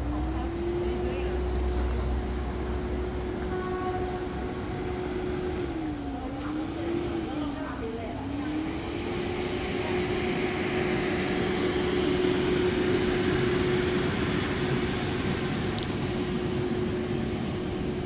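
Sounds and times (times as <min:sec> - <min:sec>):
air blower motor hum: 0:00.0 - 0:18.0
rushing air: 0:08.8 - 0:16.7.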